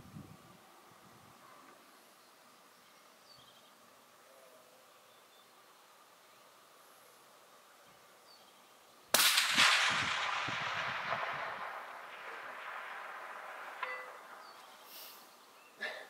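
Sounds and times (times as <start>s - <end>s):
suppressed rifle shot: 9.1s - 14.6s
rolling echo off valley: 9.1s - 14.9s.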